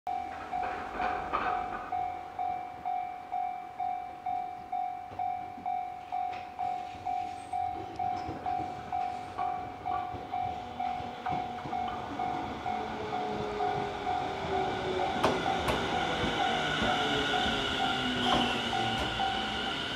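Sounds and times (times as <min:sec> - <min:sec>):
faint train rumble: 0:00.1 - 0:19.9
level-crossing warning bell ringing: 0:00.1 - 0:19.9.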